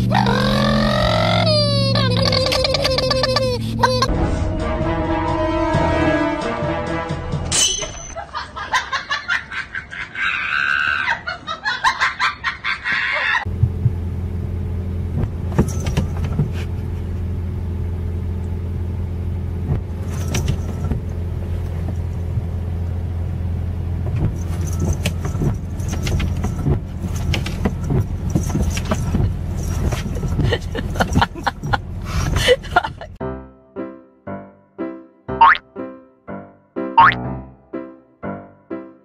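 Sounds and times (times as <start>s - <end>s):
car engine idling: 13.4s - 33.2s
cat collar bell jingling: 24.4s - 31.8s.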